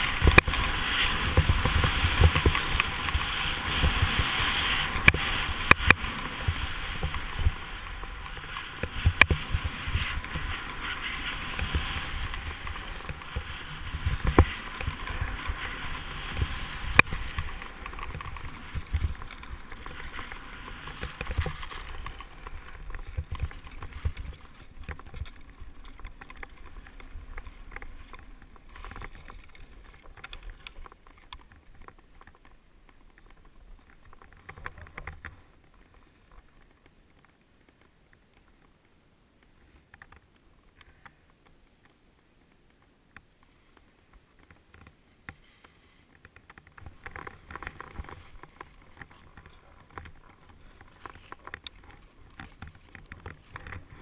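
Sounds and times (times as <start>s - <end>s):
ski hissing on snow: 0.0s - 22.9s, 45.4s - 46.1s
wind rumbling on microphone: 0.0s - 36.6s, 46.2s - 54.0s.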